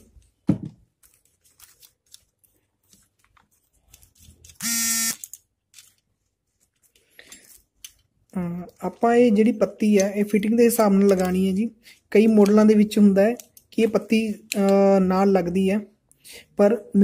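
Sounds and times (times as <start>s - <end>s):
loud buzz: 4.6s - 5.2s.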